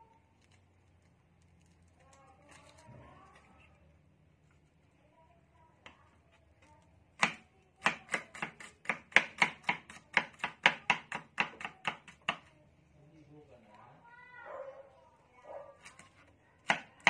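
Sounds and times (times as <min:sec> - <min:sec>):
cleaver chopping on cutting board: 0:07.2 - 0:12.4.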